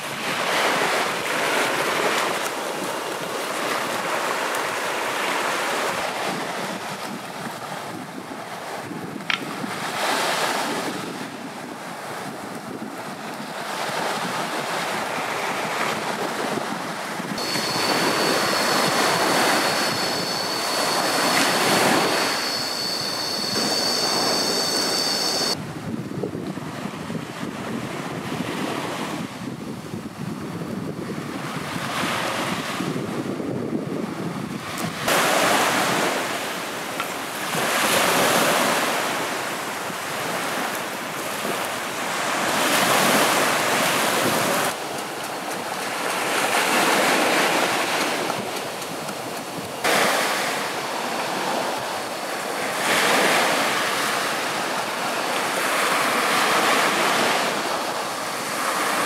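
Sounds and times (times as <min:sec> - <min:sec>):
waves washing onto shore: 0:00.0 - 0:25.9, 0:26.5 - 0:59.0
wind buffeting microphone: 0:00.0 - 0:59.0.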